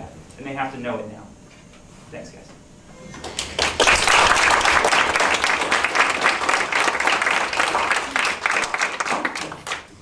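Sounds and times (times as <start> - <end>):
crowd applauding: 3.2 - 10.0.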